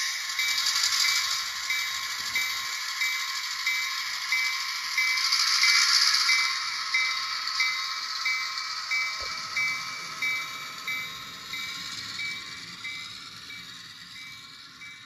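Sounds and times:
bell-like chime ringing: 0:06.3 - 0:15.0.

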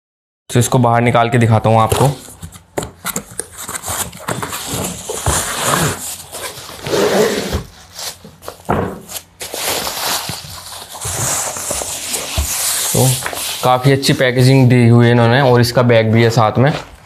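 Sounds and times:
cardboard scraping: 0:01.8 - 0:14.5
plastic wrapping crinkling: 0:07.8 - 0:14.3.

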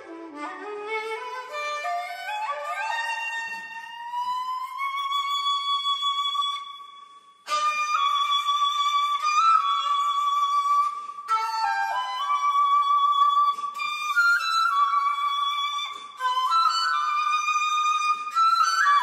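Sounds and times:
bamboo flute long notes: 0:00.0 - 0:19.0.

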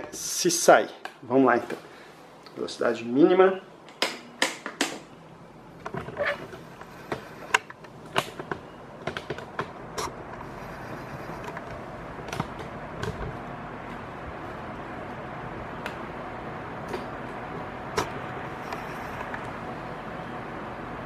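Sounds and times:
electric fan air rush: 0:09.8 - 0:21.0.

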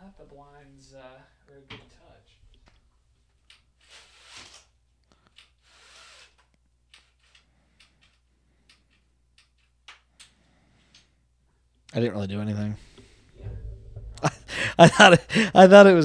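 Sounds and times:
window blind rustling and clicking: 0:03.5 - 0:08.2.

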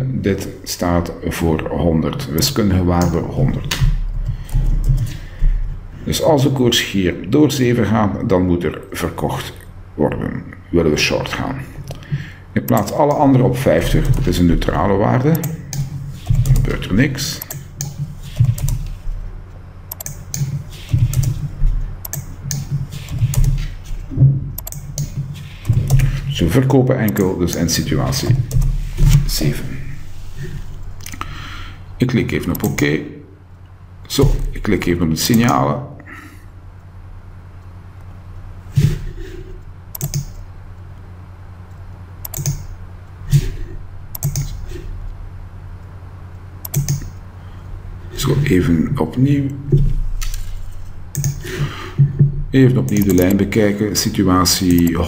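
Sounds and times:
low hum: 0:00.0 - 0:55.0
computer keyboard keystrokes: 0:17.4 - 0:19.0, 0:19.9 - 0:23.7, 0:24.6 - 0:26.2, 0:27.1 - 0:29.2, 0:39.9 - 0:40.4, 0:42.2 - 0:42.8, 0:44.1 - 0:44.6, 0:46.6 - 0:47.2, 0:51.1 - 0:51.5, 0:52.9 - 0:53.4, 0:54.7 - 0:55.0.

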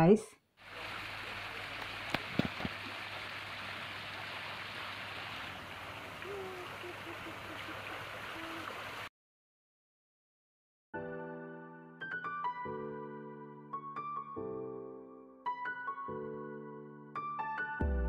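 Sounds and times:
water splashing down fountain: 0:00.6 - 0:09.1.

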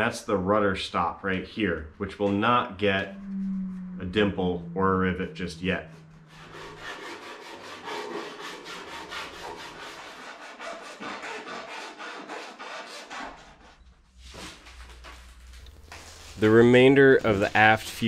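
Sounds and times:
file rasping on metal: 0:06.4 - 0:13.8.

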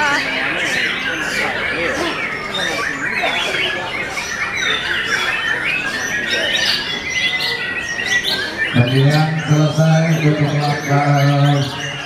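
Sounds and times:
birds singing: 0:00.0 - 0:12.0.

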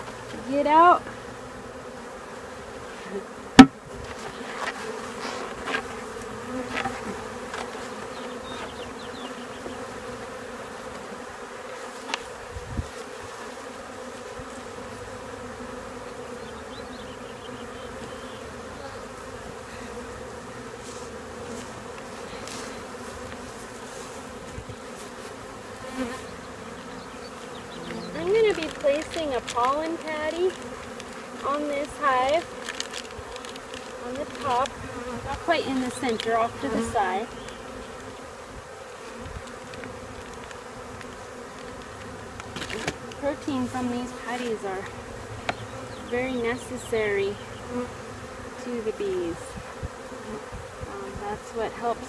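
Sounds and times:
honeybees buzzing: 0:00.0 - 0:52.0
sharp knock: 0:03.6 - 0:03.8.

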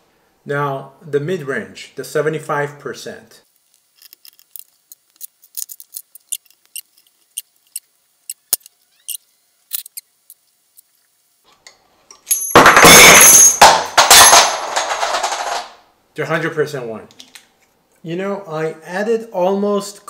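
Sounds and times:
metal washers clinking: 0:12.2 - 0:15.7
loud metal clatter: 0:12.4 - 0:15.8.

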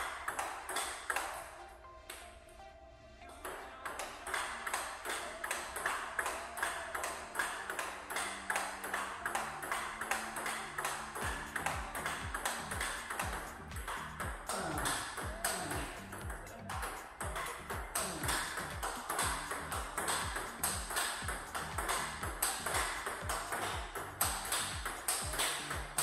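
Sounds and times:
table tennis ball clicks: 0:00.0 - 0:01.5, 0:03.4 - 0:26.0
background music with bass beat: 0:03.2 - 0:26.0.

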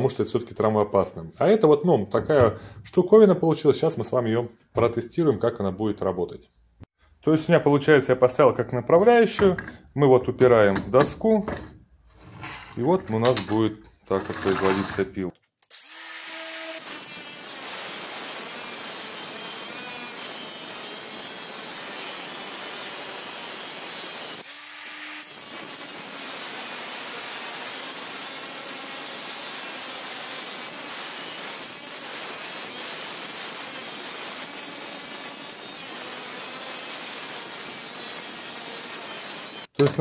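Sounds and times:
angle grinder cutting metal: 0:14.1 - 0:15.0, 0:15.7 - 0:39.7.

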